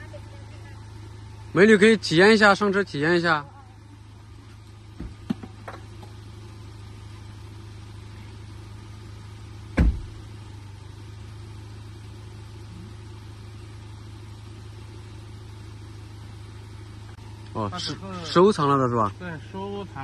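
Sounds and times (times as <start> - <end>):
engine idling: 0.0 - 20.0
loud thump: 9.7 - 10.2.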